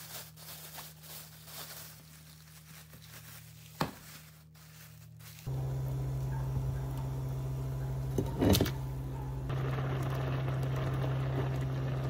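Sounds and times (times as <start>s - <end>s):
plastic bag crinkling: 0.0s - 5.9s
steady low hum: 2.1s - 12.0s.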